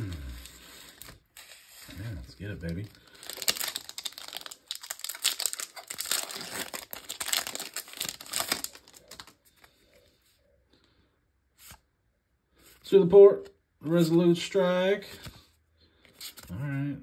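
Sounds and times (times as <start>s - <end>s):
foil wrapper tearing and crinkling: 0.0s - 9.4s.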